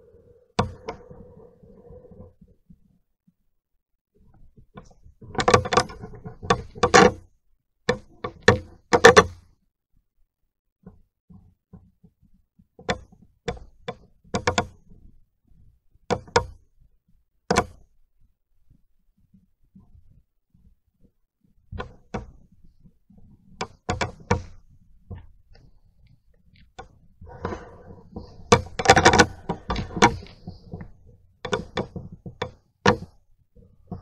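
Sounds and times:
close knocks and thumps: 4.2s - 9.5s, 10.8s - 16.7s, 17.5s - 17.9s, 18.7s - 34.0s.

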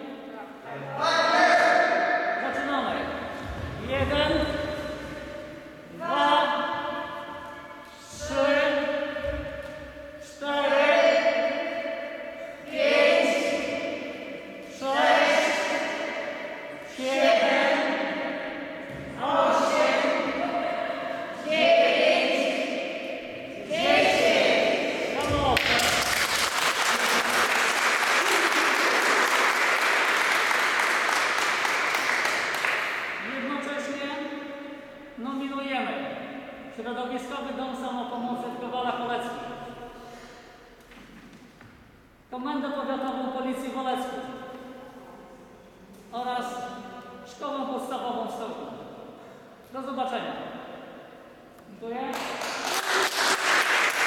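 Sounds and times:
group chanting counts: 0.7s - 33.9s
crowd applauding: 25.2s - 33.0s, 52.2s - 54.0s.

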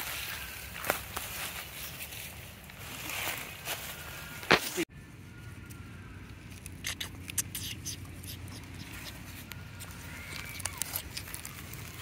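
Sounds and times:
dry leaves crackling and rustling: 0.0s - 4.9s, 8.9s - 12.0s.

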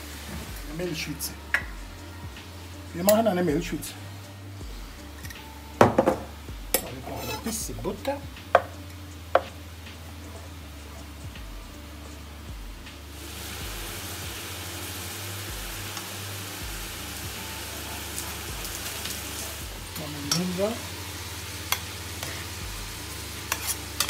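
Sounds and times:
fish sizzling in a pan: 0.0s - 3.7s, 13.1s - 24.0s.

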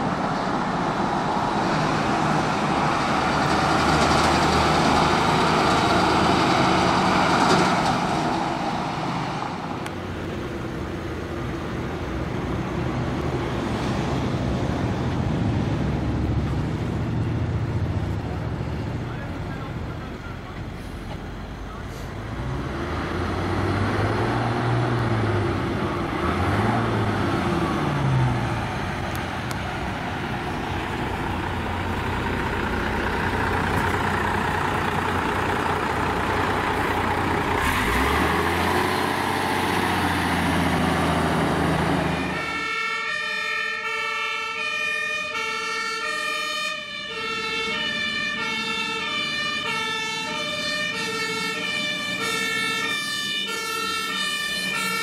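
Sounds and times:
diesel bus engine revving: 0.0s - 43.3s, 44.6s - 55.0s
two-tone fire truck sirens: 16.7s - 55.0s.

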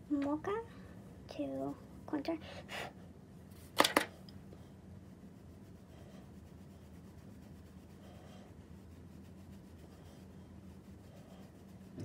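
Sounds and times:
low steady hum: 0.0s - 12.0s
makeup brush sweeping skin: 5.0s - 12.0s.

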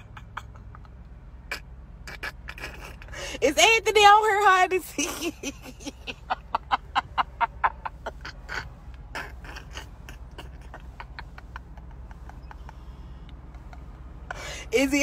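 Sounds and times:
woman laughing in breathy bursts: 5.0s - 14.7s.

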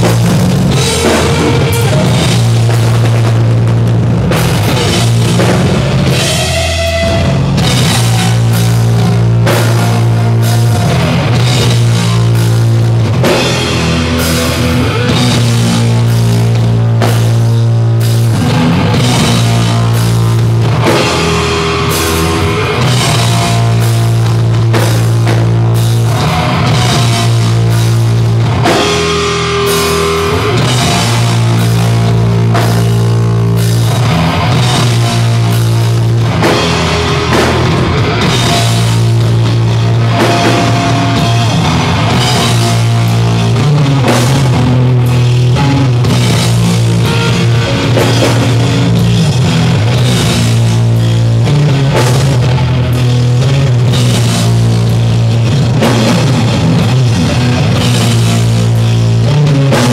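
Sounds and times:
bass guitar: 0.0s - 59.9s
distorted electric guitars: 0.0s - 59.9s
drums: 0.0s - 59.9s.

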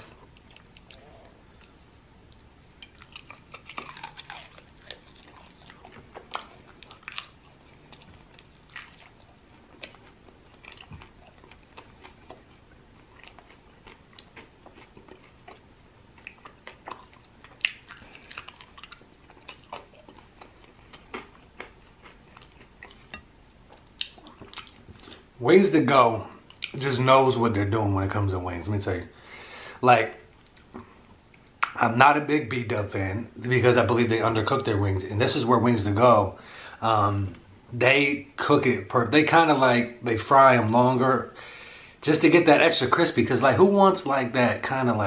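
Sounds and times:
crunching chicken wings: 2.8s - 23.2s.

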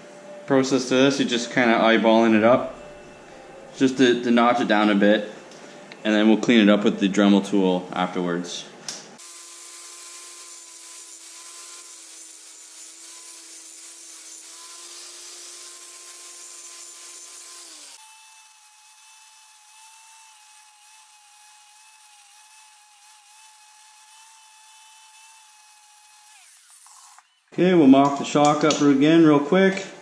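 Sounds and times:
angle grinder motor whine: 9.2s - 27.5s.

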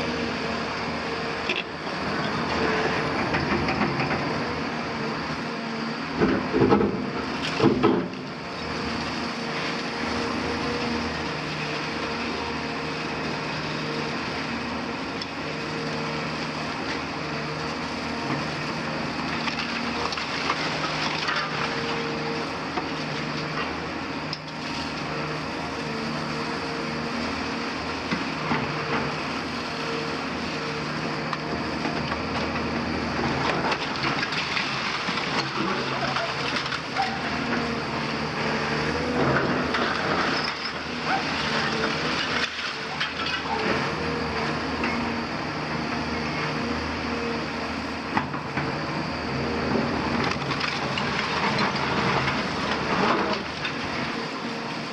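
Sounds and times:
excavator diesel engine running: 0.0s - 54.9s
masonry crashing and crumbling: 33.7s - 37.0s.

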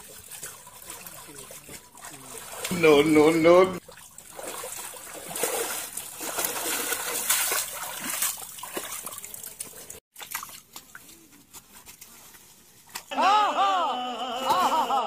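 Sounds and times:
person wading through water: 0.0s - 11.1s.

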